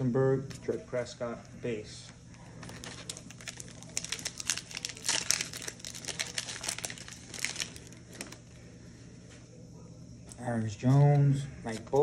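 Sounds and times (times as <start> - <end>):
plastic wrapper crinkling and tearing: 2.2 - 8.6.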